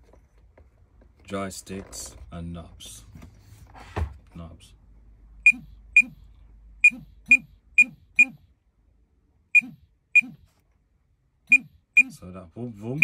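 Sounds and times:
short high beeps: 5.5 - 6.2, 6.8 - 8.4, 9.6 - 10.4, 11.5 - 12.2.

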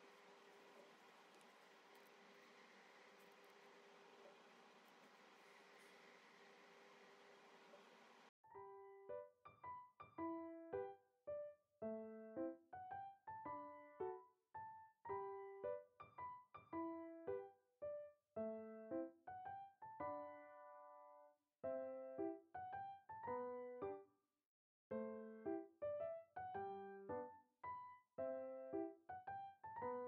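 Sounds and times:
bouncy piano tune: 8.5 - 24.0, 24.9 - 30.0.

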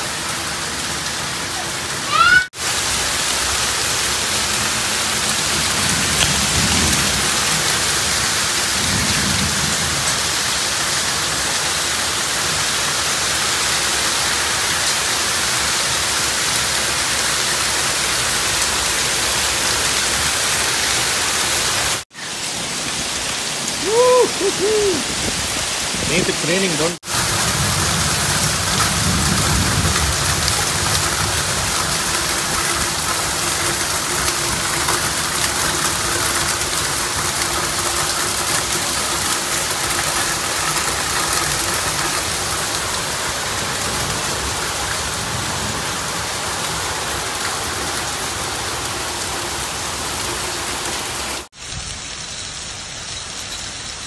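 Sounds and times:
heavy rain hissing: 0.0 - 54.0.

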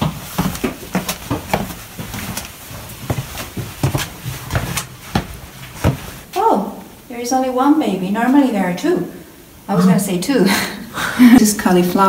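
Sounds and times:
footsteps on stone steps: 0.0 - 6.3.

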